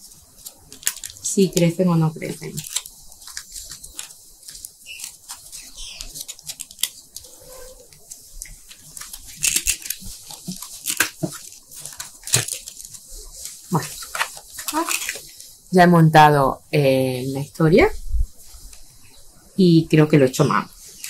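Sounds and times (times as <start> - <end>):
plastic cups crinkling: 0.0 - 15.6.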